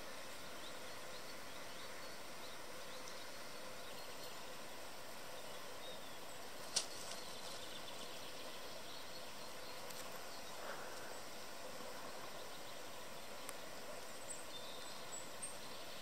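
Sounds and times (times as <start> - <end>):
faint bird calls: 9.7 - 13.6.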